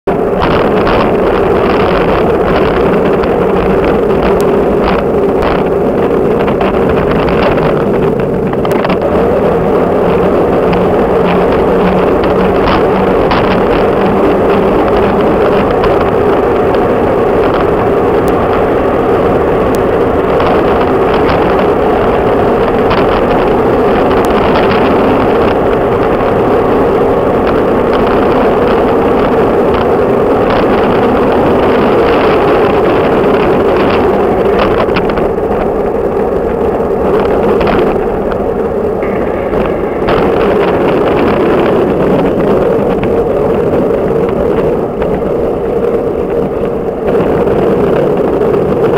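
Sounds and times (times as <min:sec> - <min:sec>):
tyres on asphalt: 0:00.1 - 0:48.9
wind rushing: 0:00.1 - 0:48.9.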